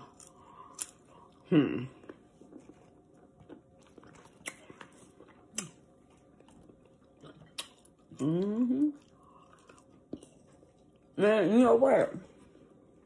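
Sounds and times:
chewing with smacking clicks: 2.0 - 11.0.

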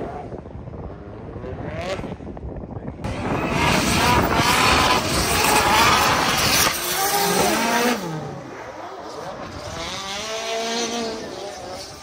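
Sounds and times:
tyres screeching on asphalt: 3.1 - 9.1
car engine revving high: 3.1 - 12.0.

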